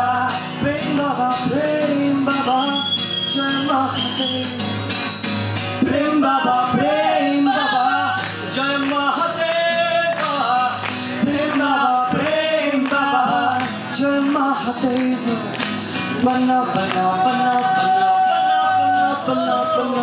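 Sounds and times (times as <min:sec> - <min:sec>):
strummed acoustic guitar: 0:00.0 - 0:20.0
man singing long notes: 0:05.8 - 0:20.0.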